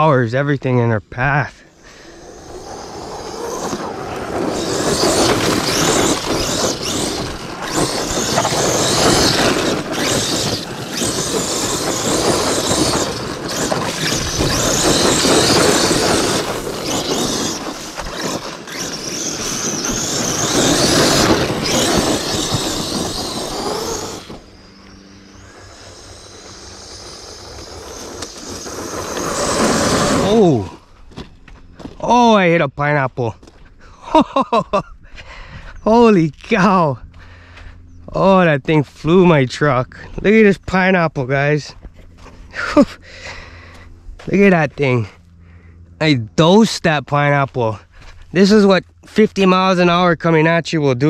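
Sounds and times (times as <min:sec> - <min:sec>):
tyres spraying dirt: 0:01.2 - 0:30.8
electric motor whine: 0:01.7 - 0:32.3.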